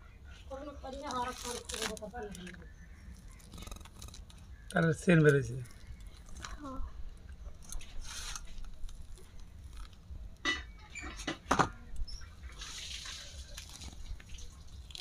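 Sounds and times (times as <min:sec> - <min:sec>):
fruit pulp rustling and tearing: 0:00.7 - 0:11.2, 0:11.9 - 0:15.0.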